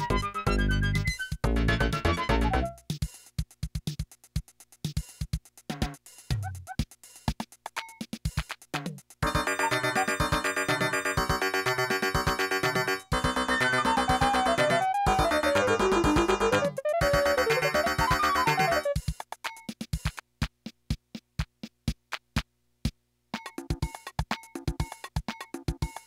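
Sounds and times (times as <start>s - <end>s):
drum machine rhythm: 0.0s - 26.0s
keyboard chords and lead melody: 9.2s - 19.0s.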